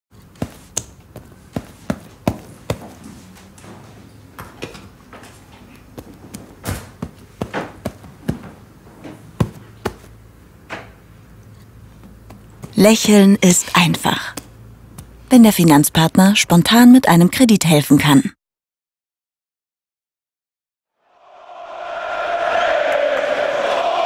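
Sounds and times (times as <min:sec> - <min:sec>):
hands slapping sofa cushions: 0:00.2 - 0:03.0, 0:05.9 - 0:10.2.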